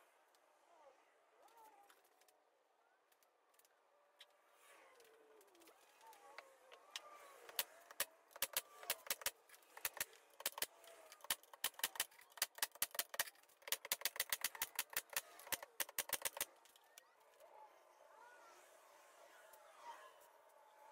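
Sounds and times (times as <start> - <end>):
nail gun firing: 7.5 - 16.5.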